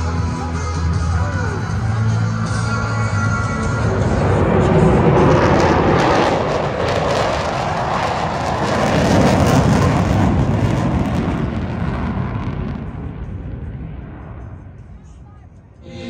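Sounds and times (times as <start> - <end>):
military jet flying past: 3.3 - 14.8.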